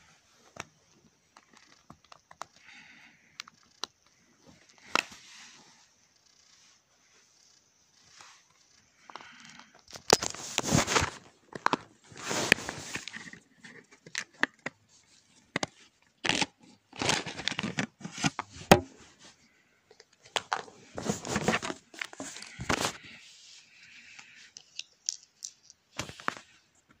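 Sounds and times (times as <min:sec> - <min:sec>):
plastic phone scraping and rustling: 0:09.1 - 0:19.3, 0:19.9 - 0:23.2.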